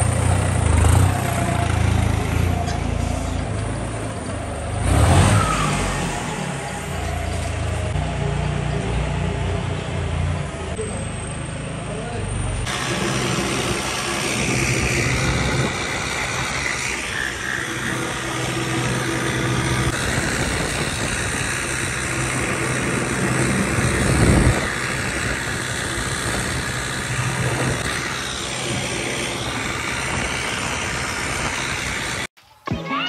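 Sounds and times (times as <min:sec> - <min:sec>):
tractor diesel engine running: 0:00.0 - 0:32.3
high turbo whistle: 0:04.9 - 0:10.1.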